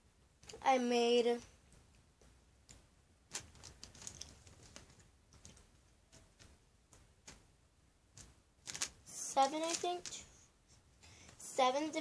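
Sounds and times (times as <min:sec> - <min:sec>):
soft clicks and rustles: 0:01.6 - 0:07.5.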